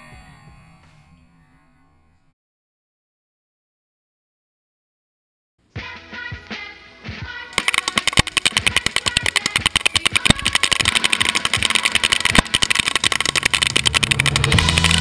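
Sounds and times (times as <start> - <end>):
airsoft rifles firing full auto: 7.6 - 15.0.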